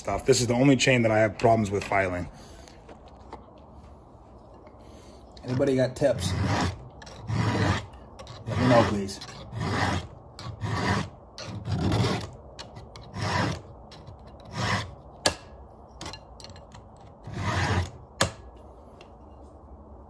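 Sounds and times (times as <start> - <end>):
file rasping on chainsaw chain: 5.4 - 15.0, 17.3 - 18.0.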